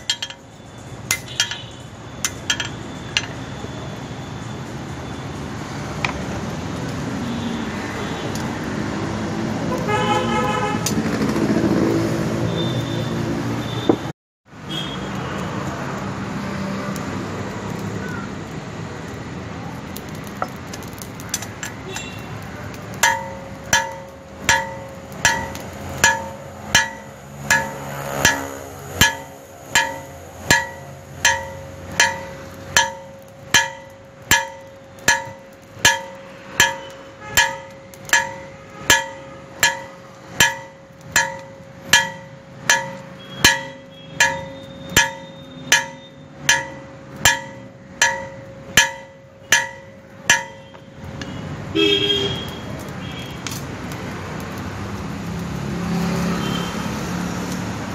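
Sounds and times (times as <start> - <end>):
hammer striking steel on anvil: 0.0 - 3.4, 22.9 - 51.3
anvil ringing: 0.0 - 3.5, 23.0 - 50.9.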